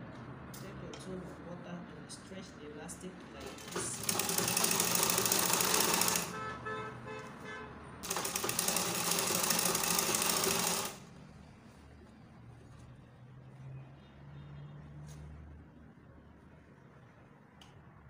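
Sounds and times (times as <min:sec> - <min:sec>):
sewing machine stitching: 0:03.4 - 0:06.4, 0:08.0 - 0:11.0.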